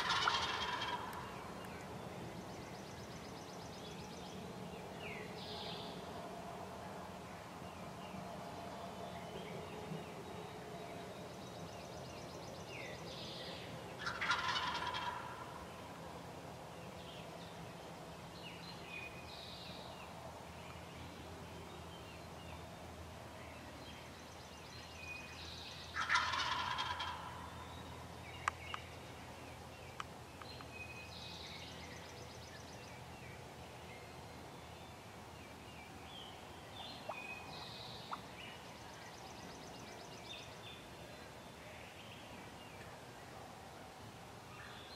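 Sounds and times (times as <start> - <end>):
turkey gobbling: 0.0 - 1.2, 14.0 - 15.5, 26.0 - 27.4
faint songbirds singing: 0.0 - 44.9.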